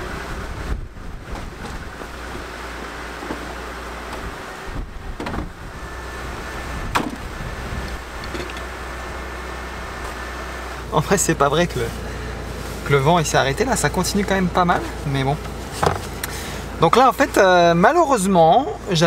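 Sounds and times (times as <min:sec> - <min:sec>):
strong storm wind blowing: 0:00.0 - 0:02.4, 0:04.1 - 0:08.4.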